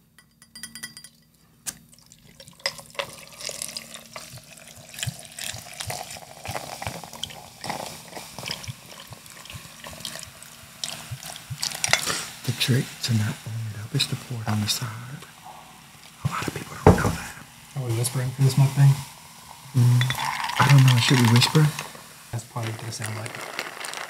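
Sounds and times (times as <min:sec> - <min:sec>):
soda pouring and fizzing over ice: 0:01.9 - 0:14.9, 0:17.6 - 0:24.0.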